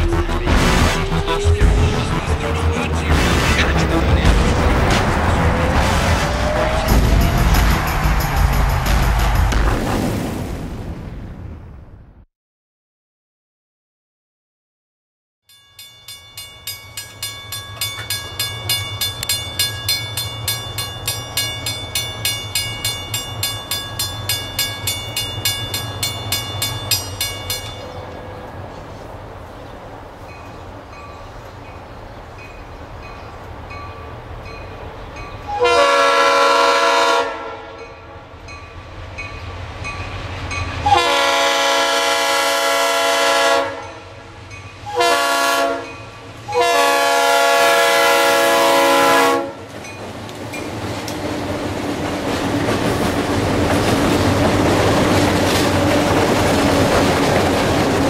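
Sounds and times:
locomotive air horn: 0.0 - 3.0, 35.5 - 38.2, 40.8 - 44.3, 44.9 - 49.7
diesel locomotive rumble: 0.0 - 9.6, 38.4 - 58.0
crossing warning bell ringing: 15.5 - 28.7, 30.2 - 36.8, 37.7 - 41.8, 43.8 - 47.0.

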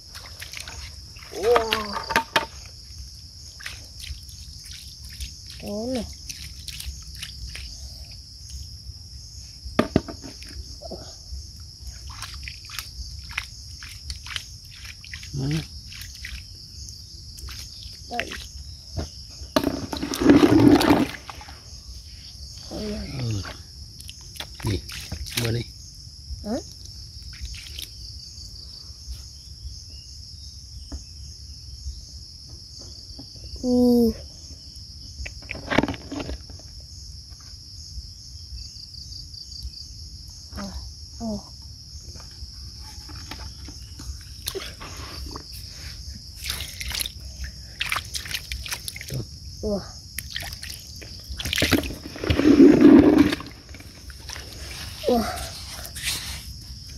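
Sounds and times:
small splashes in muddy water: 0.0 - 2.6, 3.4 - 8.2, 11.9 - 18.6, 19.8 - 21.6, 23.4 - 25.6, 27.3 - 28.0, 46.3 - 49.3, 50.1 - 55.2
insects chirring: 0.0 - 56.9.

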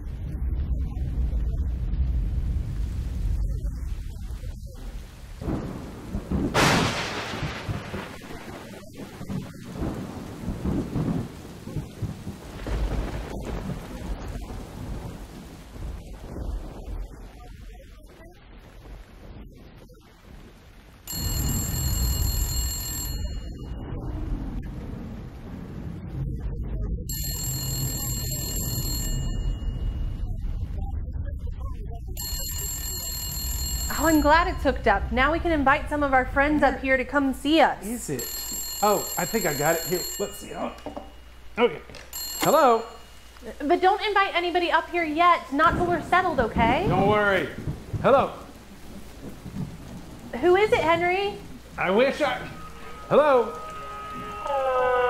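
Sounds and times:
thunder rumbling: 0.0 - 38.4, 43.0 - 55.0
steady rain: 0.0 - 55.0
low background noise: 8.0 - 54.6
telephone bell ringing: 21.1 - 23.8, 27.1 - 30.2, 32.2 - 34.6, 38.2 - 41.3, 42.1 - 43.5.

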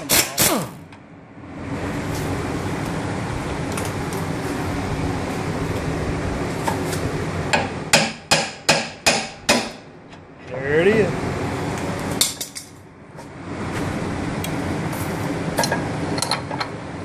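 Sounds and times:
mechanical hum: 0.0 - 17.0
hammer striking steel: 7.5 - 9.8.

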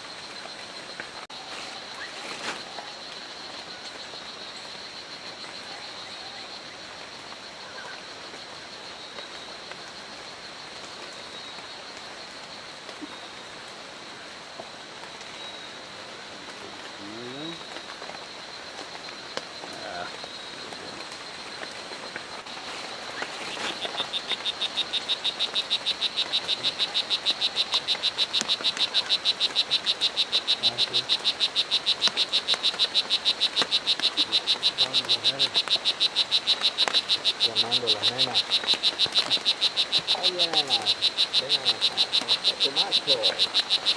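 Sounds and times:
frog chirping: 16.8 - 43.9.

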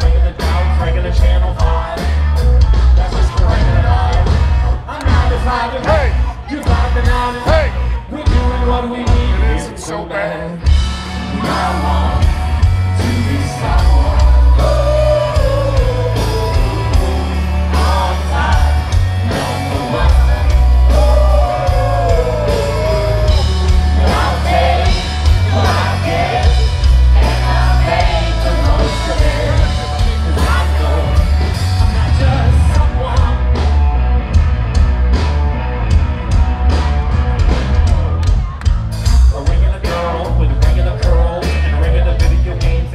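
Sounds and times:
man singing and shouting: 0.0 - 33.6, 39.2 - 42.9
live rock band: 0.0 - 42.9
drum and cymbal hits: 10.7 - 42.9.

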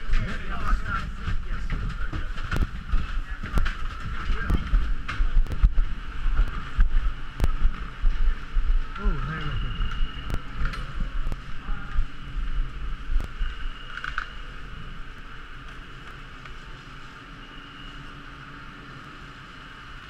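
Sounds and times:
low rumbling: 0.0 - 16.0.

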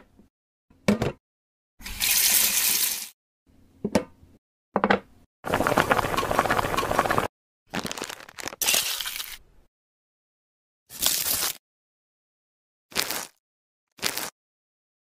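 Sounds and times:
plastic bricks rattling and clattering: 5.5 - 9.4.

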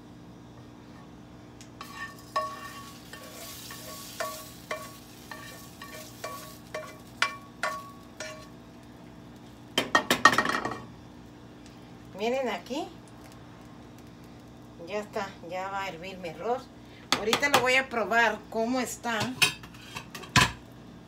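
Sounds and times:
pan clattering: 1.8 - 8.5
spoon tapping ringing frying pan: 1.8 - 8.5.

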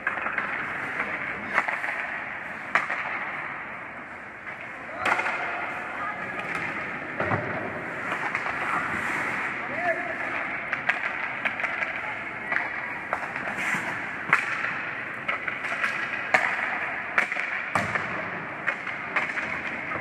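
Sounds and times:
hockey sticks clacking on puck: 0.0 - 20.0.

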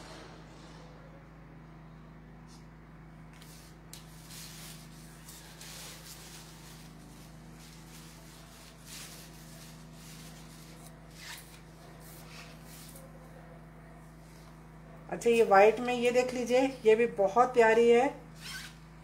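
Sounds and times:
steady low hum: 0.0 - 19.0
fabric rustling: 3.4 - 13.1.

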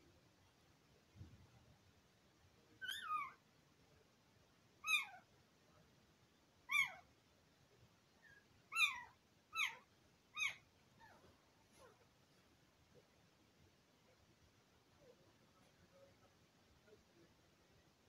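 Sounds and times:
puppies squealing: 2.8 - 3.4, 8.7 - 9.8, 10.4 - 10.6.

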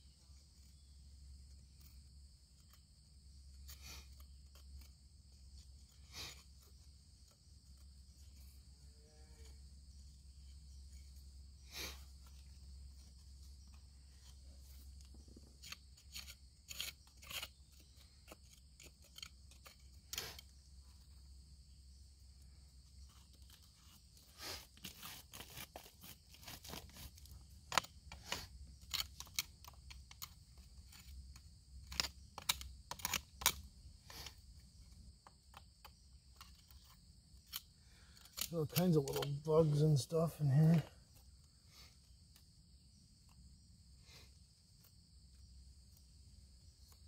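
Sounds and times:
metal probe scraping rock and gravel: 0.2 - 43.3.

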